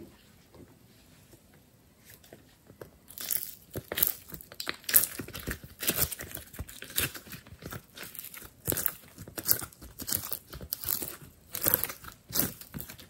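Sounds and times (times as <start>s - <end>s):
sticky slime crackles: 3.0s - 13.0s.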